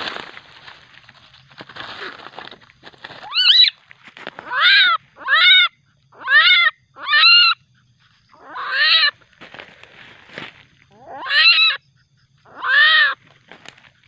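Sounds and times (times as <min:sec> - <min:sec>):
civet crying: 0:03.2 - 0:03.8, 0:04.4 - 0:07.7, 0:08.3 - 0:09.2, 0:10.9 - 0:13.2.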